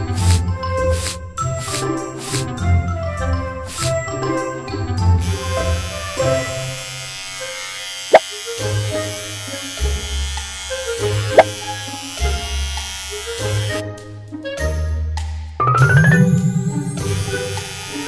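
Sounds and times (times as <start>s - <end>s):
electric hair clipper buzzing: 0.0s - 0.4s, 1.0s - 2.5s, 3.7s - 4.0s, 5.2s - 13.8s, 17.0s - 18.0s
background music: 0.0s - 18.0s.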